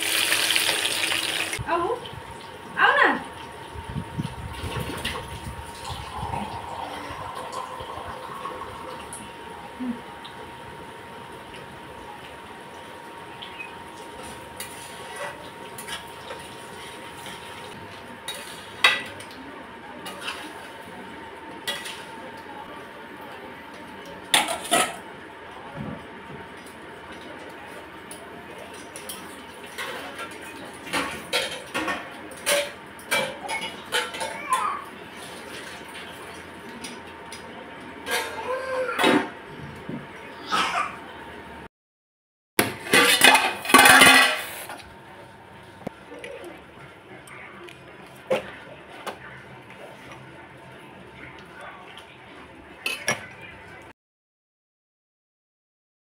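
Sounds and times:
metal utensils scraping pans: 0:42.7 - 0:44.8.

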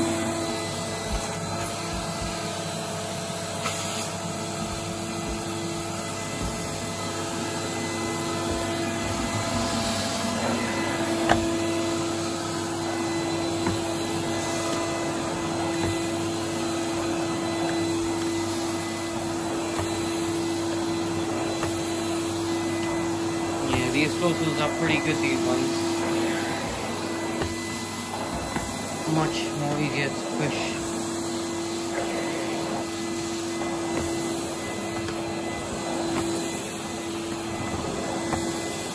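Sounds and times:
vacuum cleaner running: 0:00.0 - 0:38.9.

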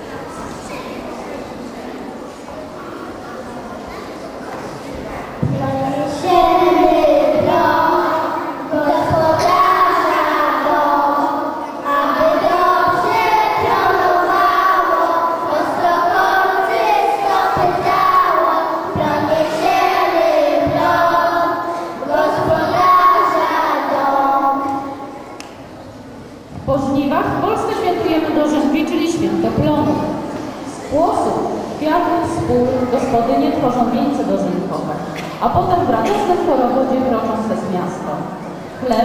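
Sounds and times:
children singing together: 0:04.0 - 0:25.6.

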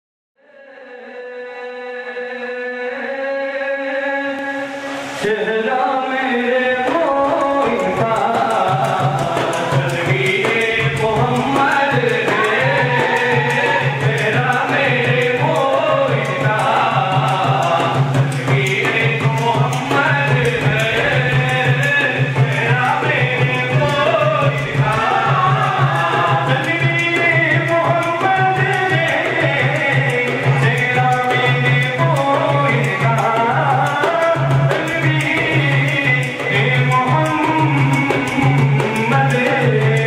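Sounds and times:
devotional song melody: 0:00.5 - 0:40.0
tabla rhythm: 0:04.3 - 0:40.0.

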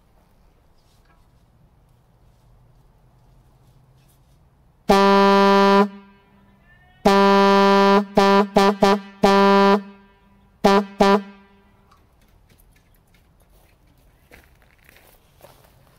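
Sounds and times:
truck air horn blasts: 0:04.9 - 0:11.9.

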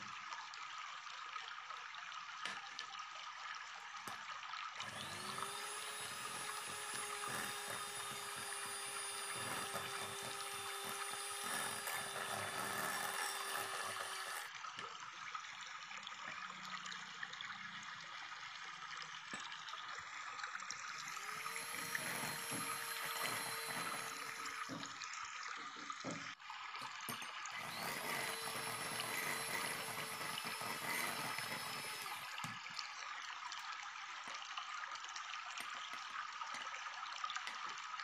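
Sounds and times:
electric hand mixer whirring: 0:04.8 - 0:14.5, 0:21.0 - 0:25.0, 0:27.6 - 0:32.6.

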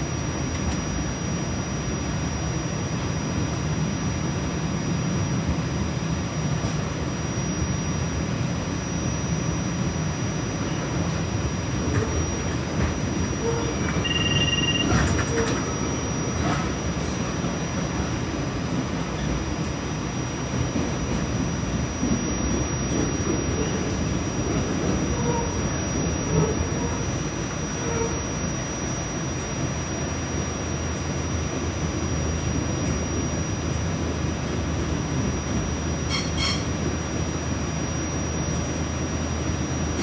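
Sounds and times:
brief high tone: 0:13.4 - 0:15.6, 0:36.1 - 0:36.8.

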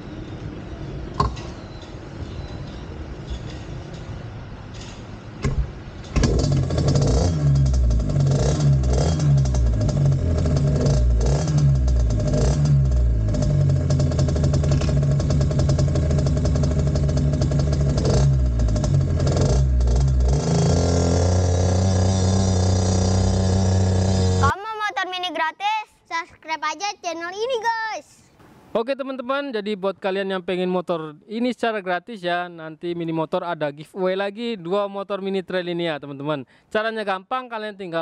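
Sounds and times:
small motorbike engine revving: 0:06.2 - 0:24.5.

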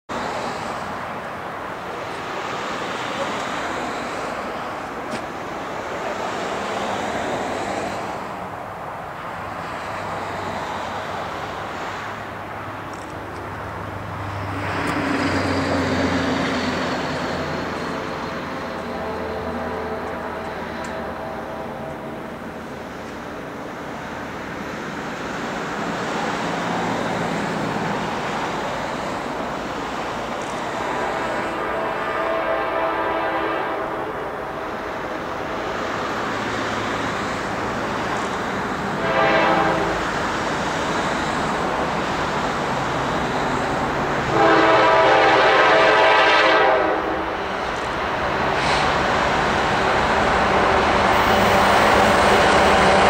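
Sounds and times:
locomotive engines and wheels rumbling: 0:00.1 - 0:53.0
train horn blasts: 0:17.5 - 0:22.4, 0:30.7 - 0:34.6, 0:39.0 - 0:40.1, 0:44.3 - 0:47.4.

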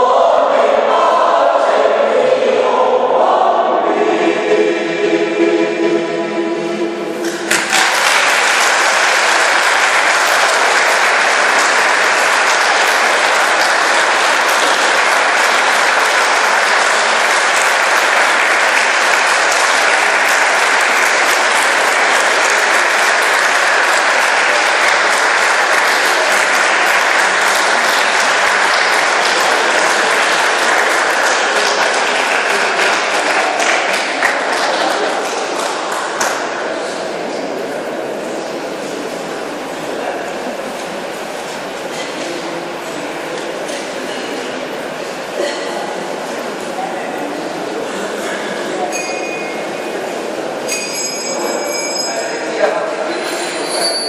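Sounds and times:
choir singing: 0:00.0 - 0:35.2
audience applauding: 0:07.2 - 0:36.8.

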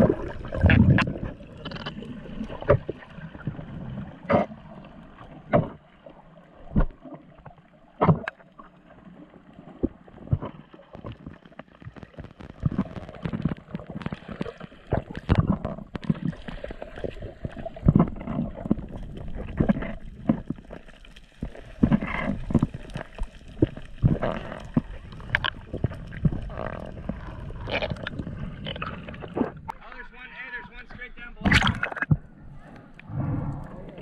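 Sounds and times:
water swirling and gurgling: 0:00.0 - 0:34.0.

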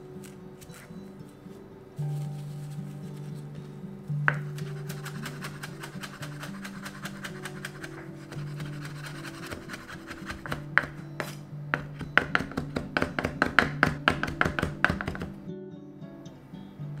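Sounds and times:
background music: 0:00.0 - 0:17.0
knife chopping on cutting board: 0:04.3 - 0:15.4.

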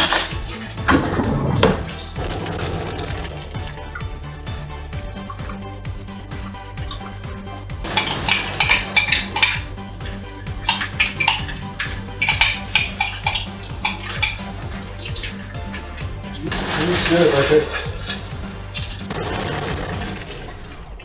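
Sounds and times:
metal spoon clinking on glass and pan: 0:07.9 - 0:09.7, 0:10.6 - 0:14.6.

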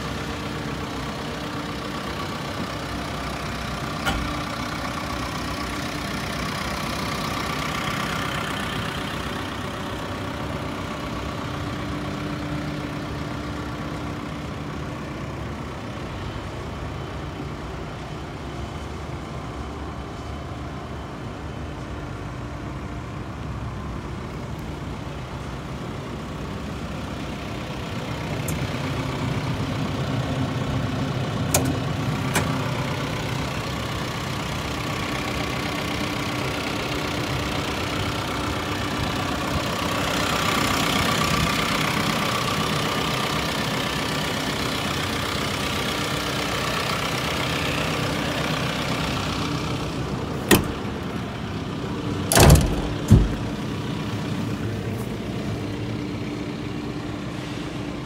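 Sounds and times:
diesel engine idling: 0:00.0 - 0:58.0
sharp knocks on machine panels: 0:52.3 - 0:53.5.

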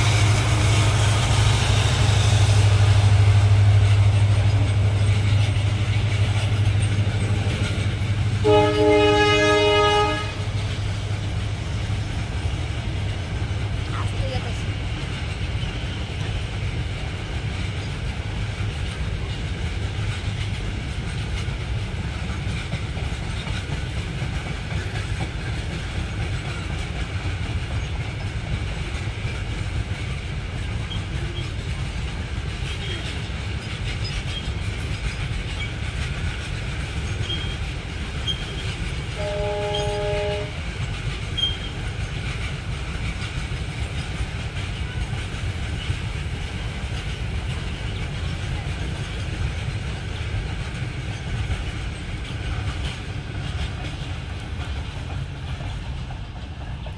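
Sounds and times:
train wheels rumbling on rails: 0:00.0 - 0:56.9
train horn: 0:08.4 - 0:10.6, 0:39.1 - 0:40.6.

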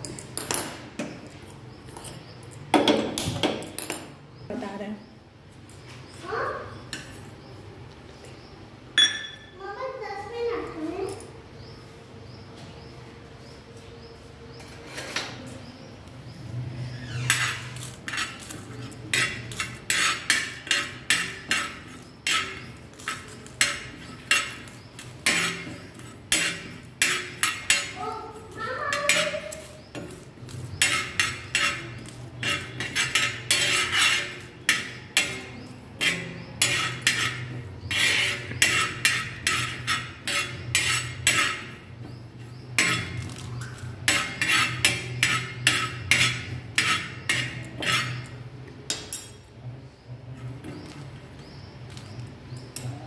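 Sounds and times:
metal spoon scraping a pan: 0:14.6 - 0:15.5, 0:16.4 - 0:49.4.

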